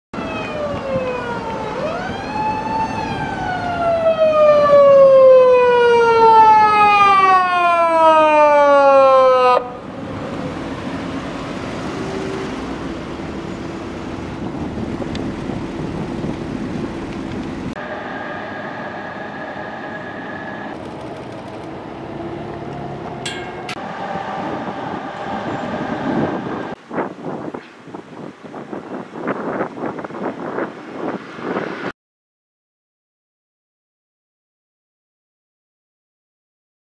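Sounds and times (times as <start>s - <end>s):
police siren wailing: 0.2s - 10.8s, 17.8s - 26.8s
road traffic and engine noise: 0.2s - 31.9s.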